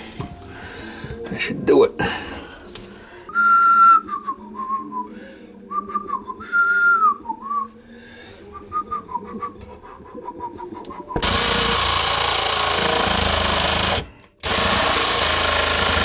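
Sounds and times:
person whistling a slow tune: 3.3s - 7.8s, 8.4s - 11.2s.

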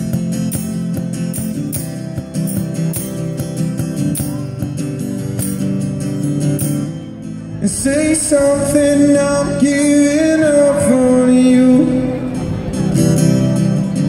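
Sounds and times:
acoustic guitar: 0.0s - 14.0s
man singing into a microphone: 7.6s - 12.3s.

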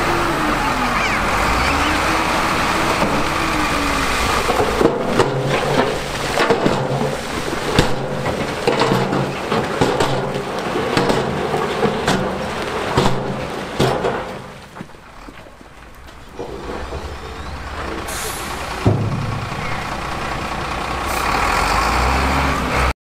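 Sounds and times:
diesel engine running: 0.0s - 22.9s
low rumble: 15.9s - 21.3s.

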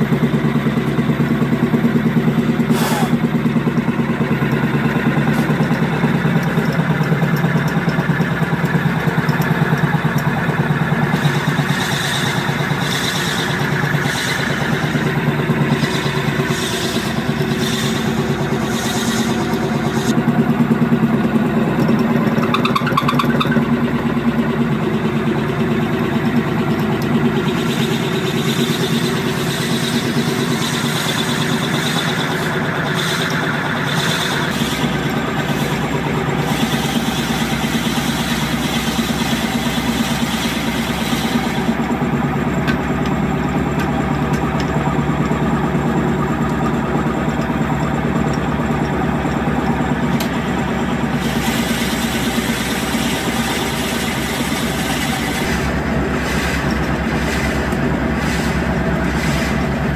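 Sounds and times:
wood lathe humming: 0.0s - 59.9s
drill bit cutting wood: 9.6s - 20.1s, 27.4s - 41.8s, 51.1s - 56.8s.

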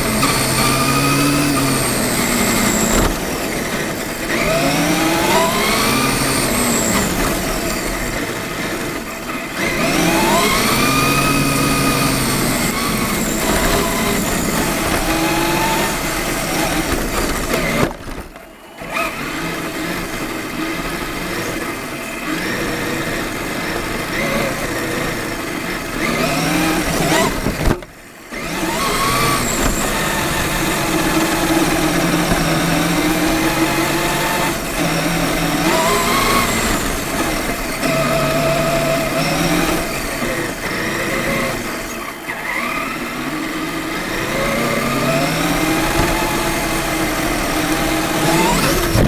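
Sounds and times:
electric toy truck motor whining: 0.0s - 49.0s.

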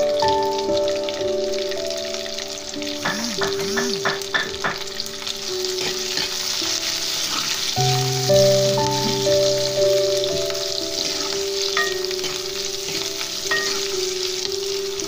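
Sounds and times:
background music: 0.0s - 15.0s
food sizzling in hot oil: 0.0s - 15.0s.

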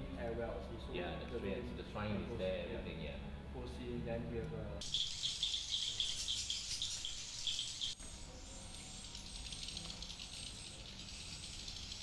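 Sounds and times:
swiftlets twittering: 4.8s - 12.0s.

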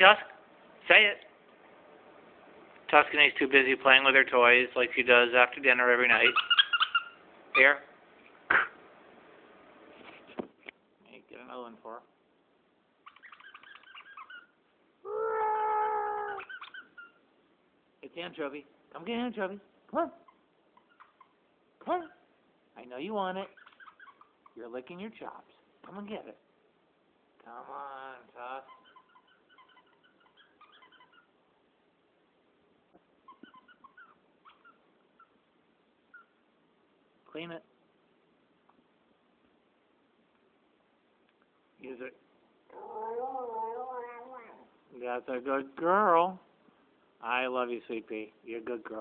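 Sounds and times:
dog toy squeaker squeaking: 6.1s - 7.7s, 13.1s - 14.5s
dog whimpering softly: 13.0s - 17.2s, 23.4s - 24.6s, 28.6s - 31.4s, 33.2s - 35.4s, 36.1s - 36.4s, 42.7s - 44.7s.

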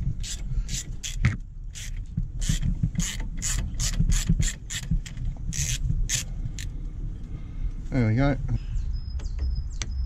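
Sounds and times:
socket ratchet clicking: 0.0s - 6.7s.

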